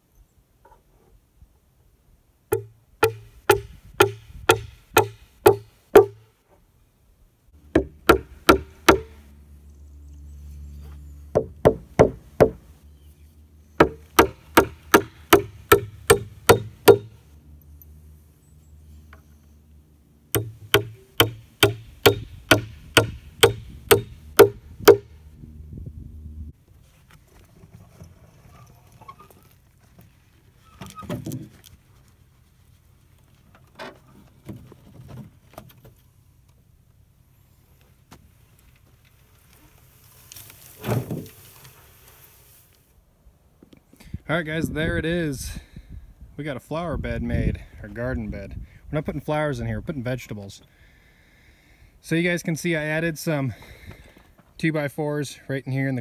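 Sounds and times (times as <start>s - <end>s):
low steady hum: 2.3s - 45.0s
hammer striking nails: 2.5s - 6.2s, 7.7s - 9.2s, 11.4s - 12.6s, 13.8s - 17.2s, 20.4s - 25.1s.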